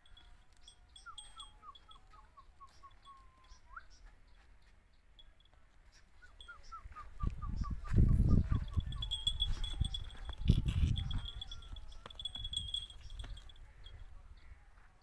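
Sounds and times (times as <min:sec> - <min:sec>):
bird whistling: 0:01.0 - 0:04.2.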